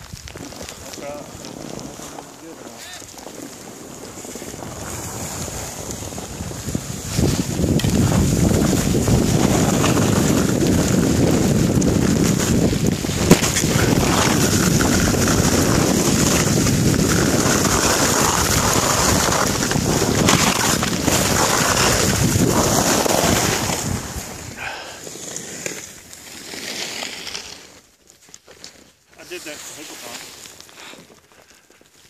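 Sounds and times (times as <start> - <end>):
wind rushing over microphone: 0.0 - 25.0.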